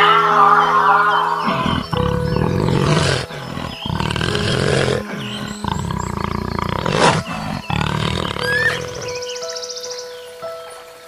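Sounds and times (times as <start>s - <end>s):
leopard roaring: 1.4s - 9.3s.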